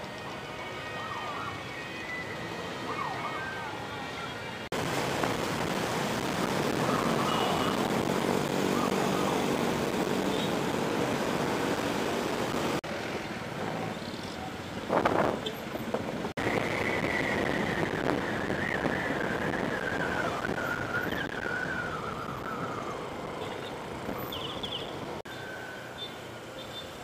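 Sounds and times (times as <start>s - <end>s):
wind and road noise: 0.0s - 27.0s.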